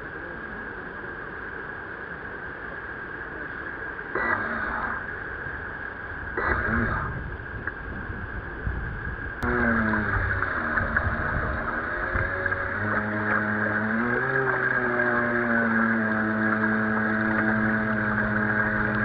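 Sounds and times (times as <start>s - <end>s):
steady pitched hum: 0.0s - 19.0s
wind: 0.0s - 19.0s
water sloshing: 9.4s - 19.0s.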